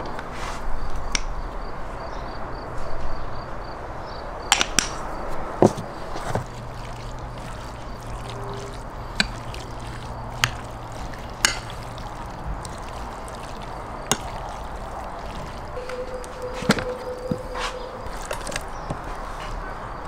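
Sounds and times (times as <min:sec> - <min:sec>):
spoon stirring wet salad: 0:05.7 - 0:19.7.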